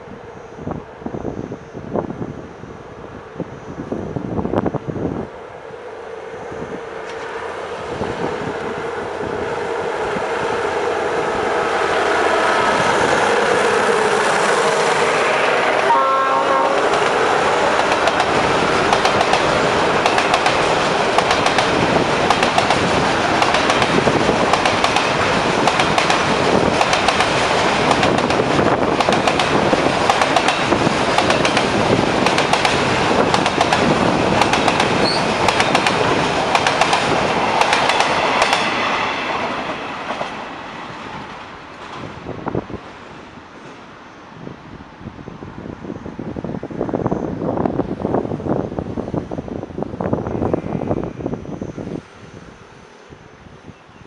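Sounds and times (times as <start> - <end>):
diesel locomotive engine: 0.0 - 54.0
train horn: 7.1 - 17.8
wheels clacking over rail joints: 16.7 - 42.1.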